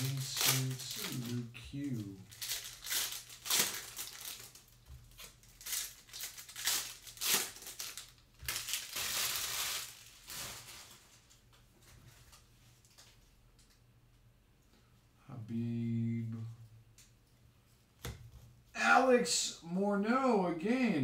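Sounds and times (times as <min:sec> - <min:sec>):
foil wrapper crinkling: 0:00.0 - 0:11.4.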